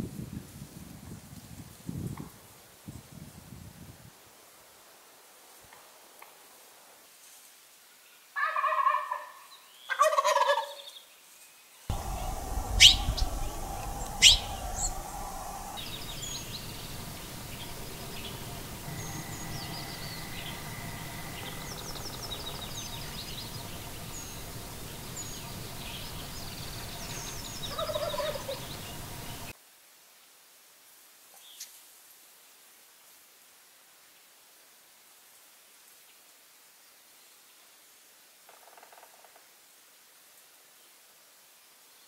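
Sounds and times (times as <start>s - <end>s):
turkey gobbling: 8.4s - 10.8s, 11.9s - 15.8s, 27.7s - 29.0s
small birds chirping: 11.9s - 29.5s.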